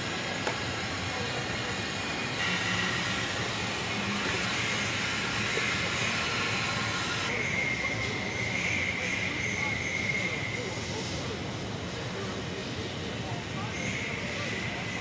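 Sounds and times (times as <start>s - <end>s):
industrial hiss: 0.0s - 7.3s
faint high whine: 0.0s - 15.0s.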